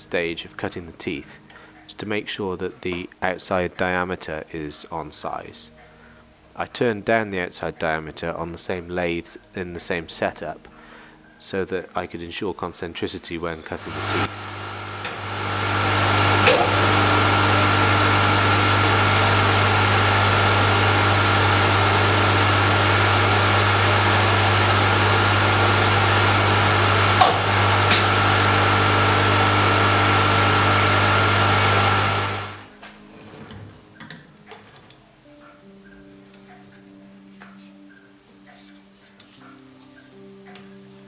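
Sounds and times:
lathe motor hum and whine: 0:13.7 - 0:32.7.

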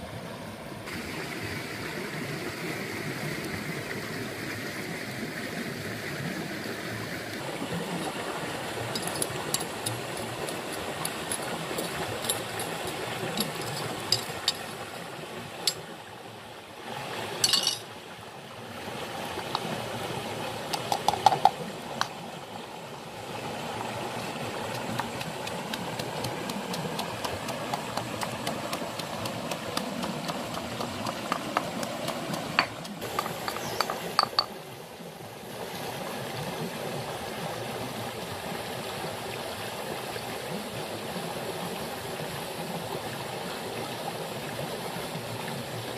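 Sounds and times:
stream running: 0:00.0 - 0:45.9
pestle pounding in stone mortar: 0:09.0 - 0:14.7, 0:24.7 - 0:34.5.

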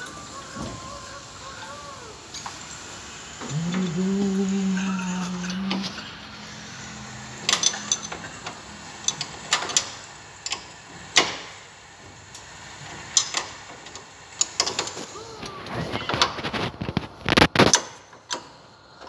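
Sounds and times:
sharp metallic clicks and knocks: 0:07.4 - 0:11.7, 0:13.0 - 0:15.1.

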